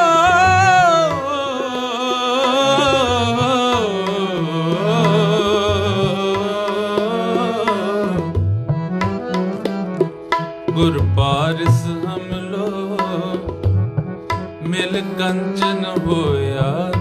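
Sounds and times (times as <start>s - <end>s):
man singing ornamented line: 0.0s - 8.5s, 10.7s - 17.0s
harmonium: 0.0s - 17.0s
tabla: 0.0s - 17.0s.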